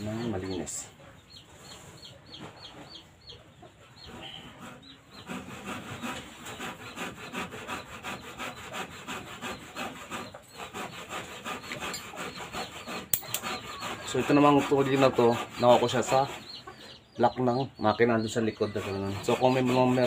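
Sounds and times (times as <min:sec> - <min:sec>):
fast rasping strokes: 0:04.1 - 0:16.7, 0:18.4 - 0:20.0.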